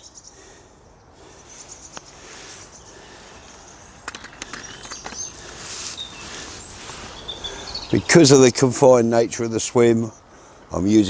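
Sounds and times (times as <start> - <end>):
small birds chirping: 0.0 - 11.0
fishing tackle clicks and rustles: 4.0 - 5.9.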